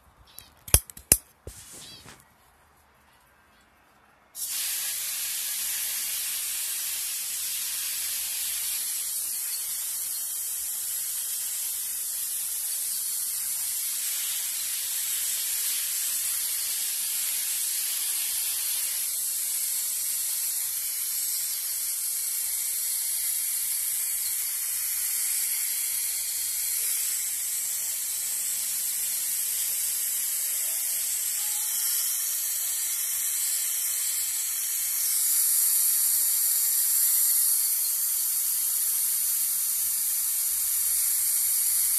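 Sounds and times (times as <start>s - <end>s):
hose nozzle spraying water: 4.4s - 41.9s.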